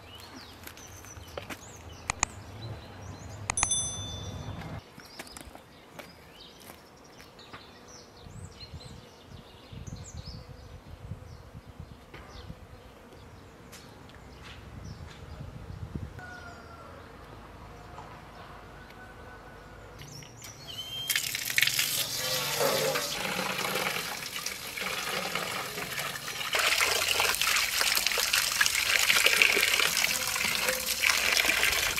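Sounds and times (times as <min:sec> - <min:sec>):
birds chirping: 0:00.0 - 0:10.5, 0:20.0 - 0:24.1
water gushing from tap: 0:21.0 - 0:31.9.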